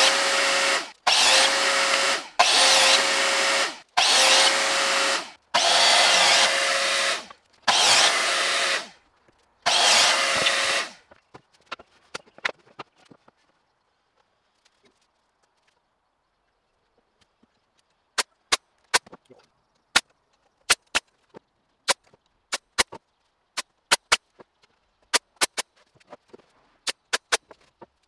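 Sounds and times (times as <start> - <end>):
nail gun shots: 23.9 - 24.2.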